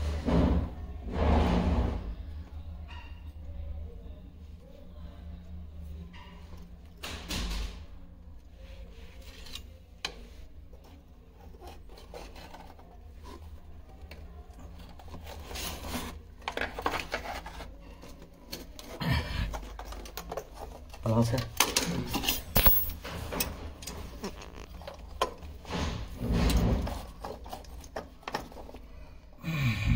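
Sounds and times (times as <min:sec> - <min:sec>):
scraping and rubbing: 0:00.0 - 0:02.1, 0:08.6 - 0:21.4, 0:22.0 - 0:29.2.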